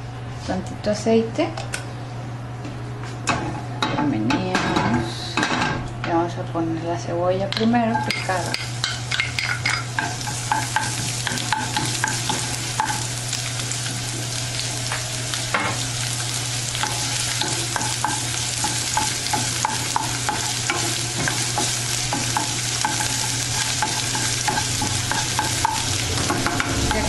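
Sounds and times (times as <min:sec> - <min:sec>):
onion sizzling in oil: 0:07.9 - 0:27.0.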